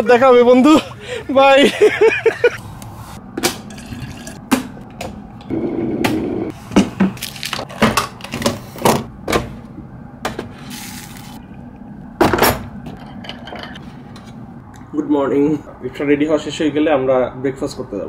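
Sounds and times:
water pouring into cup: 3.7s - 4.4s.

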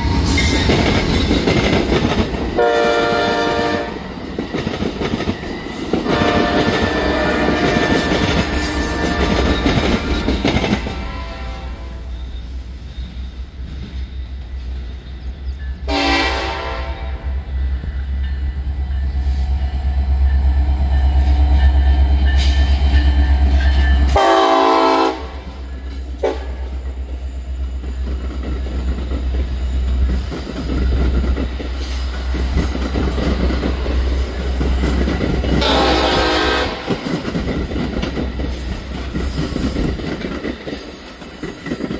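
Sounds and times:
train rumble and wheel clatter: 0.0s - 41.9s
train horn blasts: 2.6s - 4.0s, 6.0s - 10.1s, 10.8s - 12.2s, 15.9s - 17.5s, 24.1s - 25.6s, 26.2s - 26.8s, 35.6s - 37.0s.

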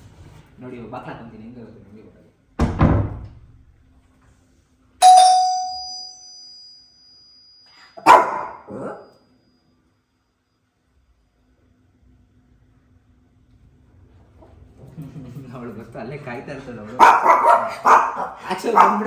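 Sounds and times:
door shutting with thump: 2.6s - 3.4s
doorbell chime: 5.0s - 8.0s
dog barking: 8.0s - 9.1s, 17.0s - 19.0s.

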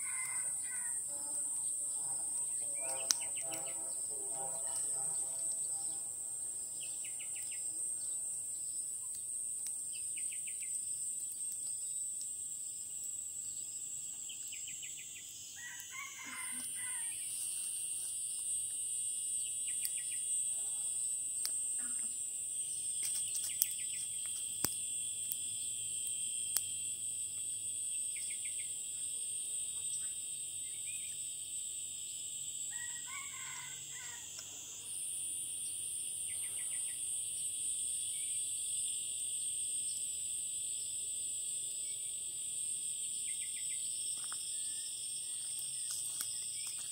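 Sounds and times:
rooster crowing: 0.0s - 1.4s, 15.6s - 17.3s, 32.7s - 34.4s
insects chorus: 0.0s - 46.9s.

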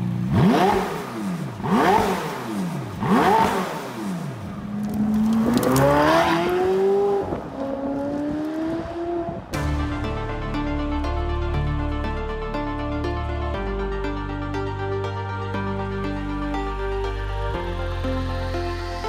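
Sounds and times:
car engine revving and accelerating: 0.2s - 9.5s.

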